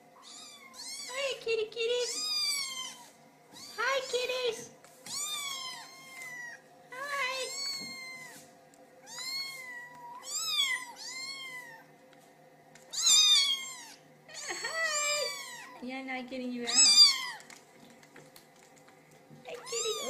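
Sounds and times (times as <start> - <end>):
kittens meowing: 0.2 - 1.2, 2.1 - 3.8, 5.1 - 6.6, 7.4 - 8.4, 9.0 - 11.9, 12.9 - 15.8, 16.7 - 17.4, 19.5 - 20.0.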